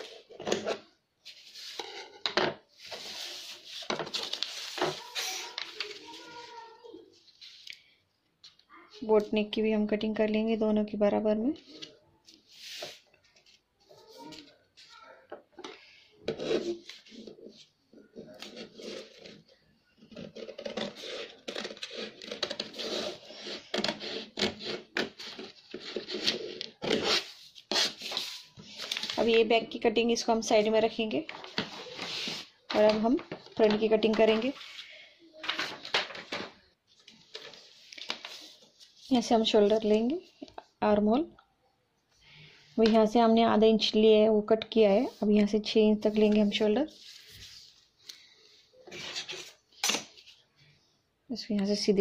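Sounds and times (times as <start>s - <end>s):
stiff paper rustling: 2.8s - 7.7s, 18.2s - 29.4s, 31.3s - 39.2s
scissors cutting paper: 20.1s - 28.1s.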